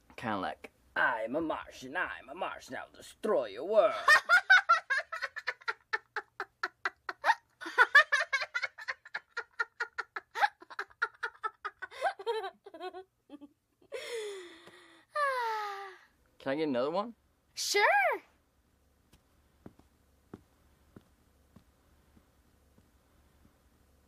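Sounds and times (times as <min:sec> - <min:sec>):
rhythmic giggling: 0:04.0 - 0:13.9.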